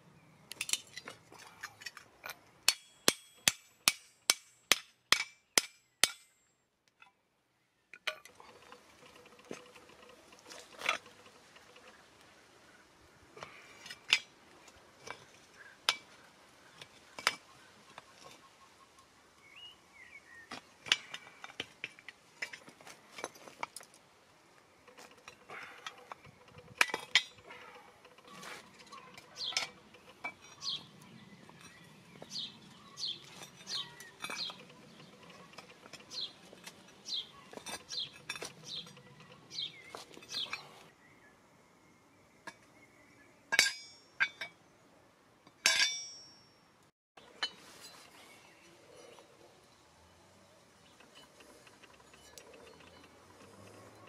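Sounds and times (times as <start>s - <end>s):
scrap metal clinking: 24.9s - 40.8s, 47.2s - 49.4s.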